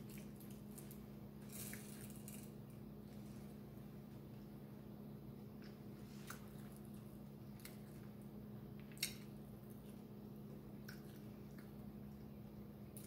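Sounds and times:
steady low hum: 0:00.0 - 0:13.0
wet chewing clicks and smacks: 0:08.8 - 0:12.3.

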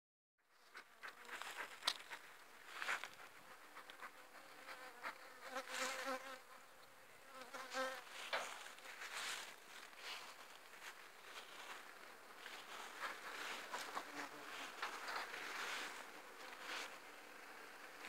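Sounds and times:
footsteps in grass: 0:01.3 - 0:03.5, 0:07.7 - 0:17.0
honeybees buzzing: 0:10.3 - 0:18.0.

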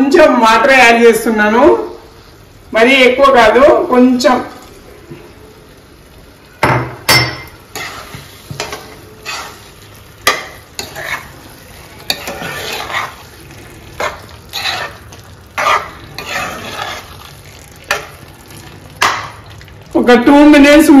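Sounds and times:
low sizzle: 0:00.0 - 0:21.0
spatula stirring and scraping curry: 0:07.6 - 0:19.6.

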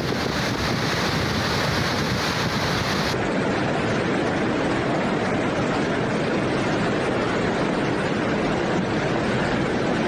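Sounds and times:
flood water rushing: 0:00.0 - 0:05.9.

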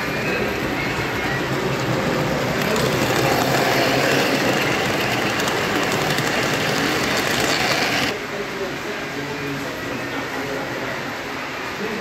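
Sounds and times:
model train wheels rumbling: 0:00.0 - 0:08.2.

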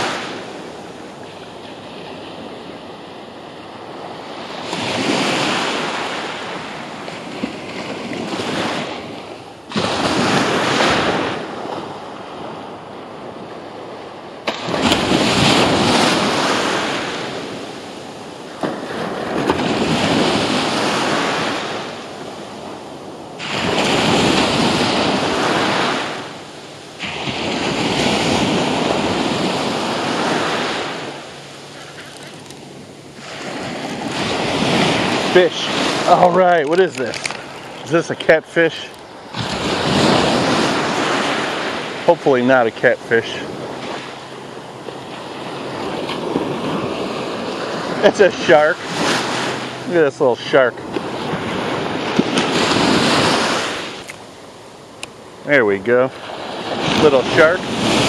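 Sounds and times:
surf waves breaking on sand: 0:00.0 - 0:58.0
wind on microphone: 0:03.8 - 0:42.1, 0:50.6 - 0:54.2.

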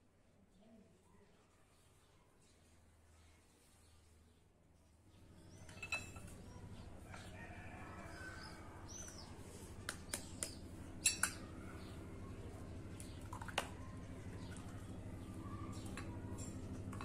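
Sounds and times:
birds chirping: 0:05.1 - 0:16.7
sharp taps and clicks: 0:09.8 - 0:10.6.

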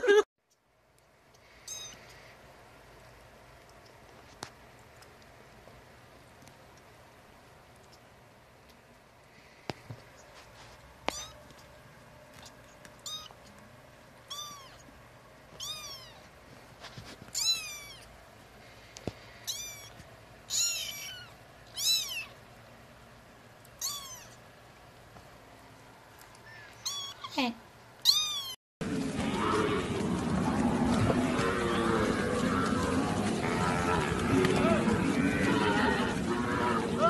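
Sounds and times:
kitten mewing: 0:01.7 - 0:02.0, 0:13.0 - 0:13.4, 0:14.3 - 0:14.8, 0:19.4 - 0:22.4, 0:23.8 - 0:24.4, 0:26.4 - 0:27.4
steady noisy background: 0:28.8 - 0:37.0.

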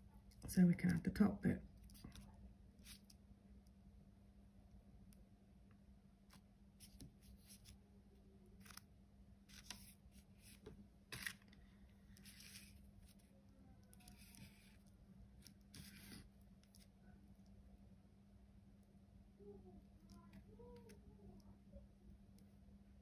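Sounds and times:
palette knife scraping filler: 0:13.8 - 0:16.8.

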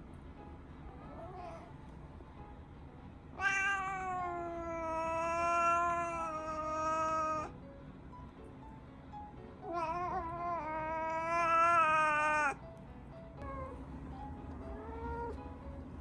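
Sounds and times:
cat meowing: 0:03.4 - 0:07.5, 0:09.6 - 0:12.6, 0:14.7 - 0:15.4.

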